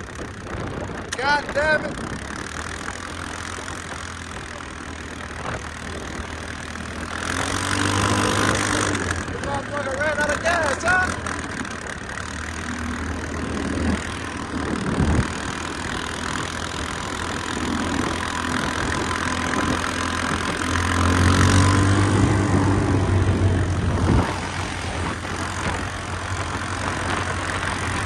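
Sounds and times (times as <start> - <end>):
wind noise: 0.0 - 2.4, 13.2 - 28.0
quad bike engine running: 0.0 - 28.0.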